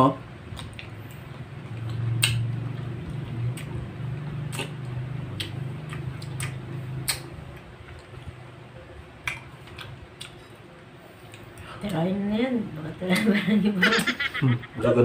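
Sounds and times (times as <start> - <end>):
low hum: 0.0 - 11.7
person chewing grape: 0.5 - 8.4, 9.1 - 11.7
wet mouth clicks: 1.8 - 2.6, 4.4 - 8.1, 9.2 - 10.4.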